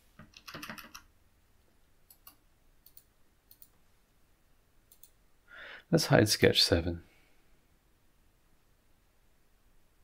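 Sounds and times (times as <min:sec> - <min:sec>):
computer mouse clicks: 0:00.2 - 0:01.1, 0:02.1 - 0:03.8, 0:04.9 - 0:05.2.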